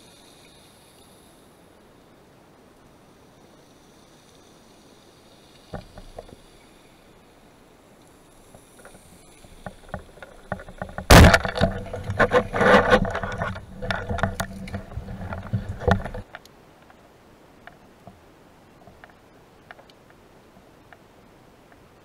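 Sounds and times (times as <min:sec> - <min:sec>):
shaft and line rattling: 0:03.4 - 0:16.4
speargun firing crack: 0:11.1 - 0:11.8.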